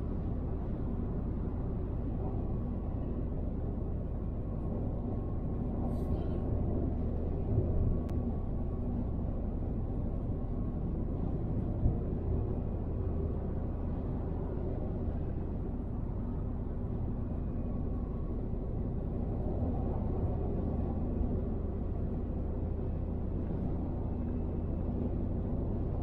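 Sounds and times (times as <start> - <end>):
car road and engine rumble: 0.0 - 26.0.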